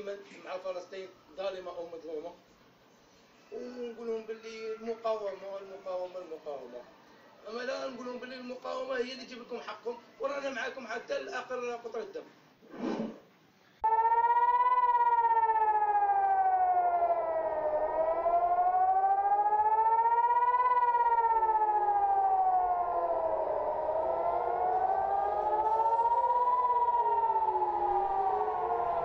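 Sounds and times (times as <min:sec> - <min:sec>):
air-raid sirens wailing: 0:13.8 - 0:29.0.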